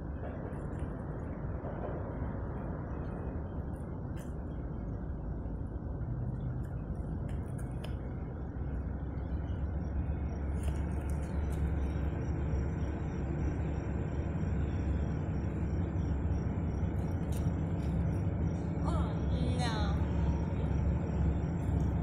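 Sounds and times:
diesel locomotive engine rumble: 0:00.0 - 0:22.0.

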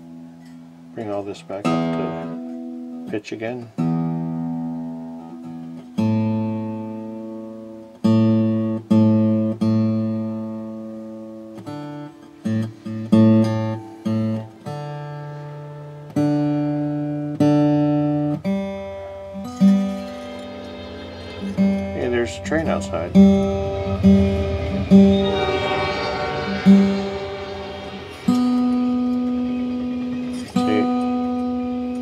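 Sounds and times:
guitar note rising in pitch: 0:01.7 - 0:02.4, 0:19.2 - 0:32.0.

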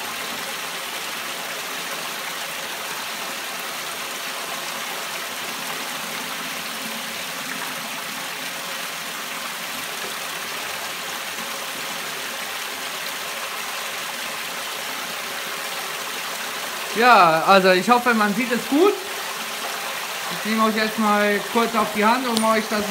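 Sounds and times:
water jetting and splashing: 0:00.0 - 0:22.9.

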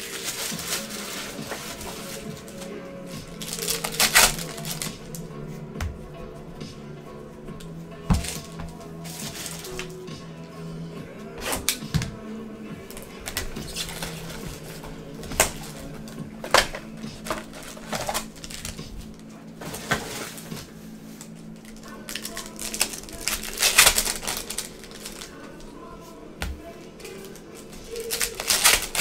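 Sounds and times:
plastic wrapper crackling: 0:00.0 - 0:05.3, 0:08.1 - 0:10.0, 0:12.9 - 0:25.7, 0:27.0 - 0:29.0.

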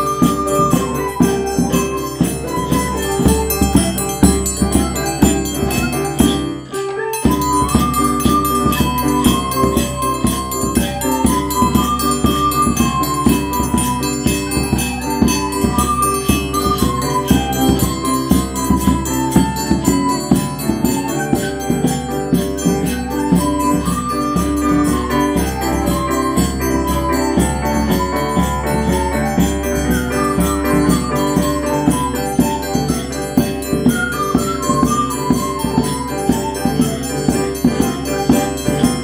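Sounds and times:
electric keyboard chords: 0:00.0 - 0:39.0
tambourine shaken: 0:00.0 - 0:39.0.

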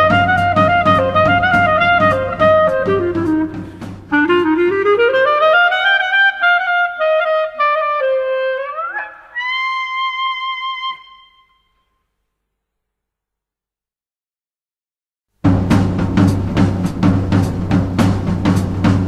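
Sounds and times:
drum beat: 0:00.0 - 0:05.4, 0:15.4 - 0:19.0
wind instrument melody: 0:00.0 - 0:11.8.

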